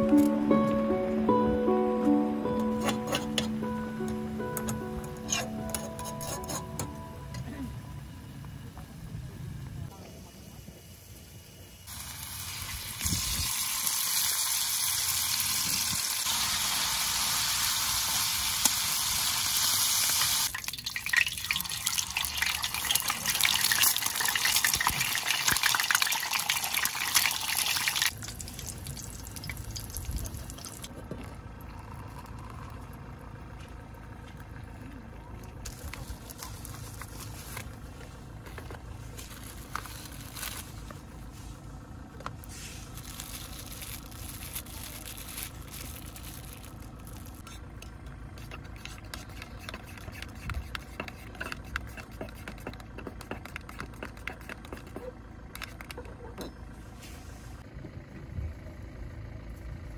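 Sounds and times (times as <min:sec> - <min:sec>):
water boiling in a pot: 0:10.0 - 0:30.9
camp stove hissing: 0:10.2 - 0:20.5.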